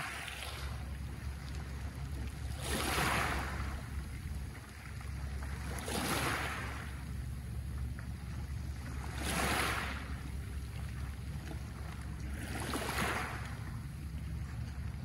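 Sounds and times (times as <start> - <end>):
steady low rumble: 0.0 - 15.0
waves washing up pebble beach: 2.6 - 3.5.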